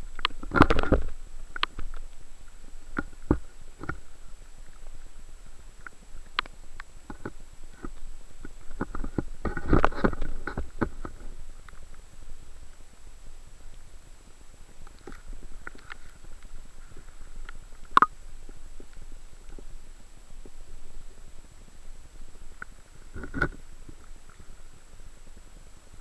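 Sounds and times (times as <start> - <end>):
underwater rumble of moving water: 0.0 - 26.0
sharp underwater clicks and knocks: 0.1 - 2.1, 2.9 - 4.0, 5.8 - 12.0, 14.9 - 19.7, 22.6 - 24.1.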